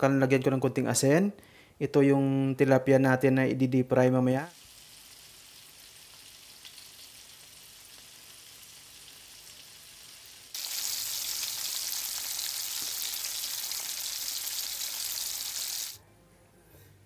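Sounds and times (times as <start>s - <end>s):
chicken wings sizzling in oil: 4.5s - 16.0s
fish deep-frying in bubbling oil: 4.5s - 16.0s.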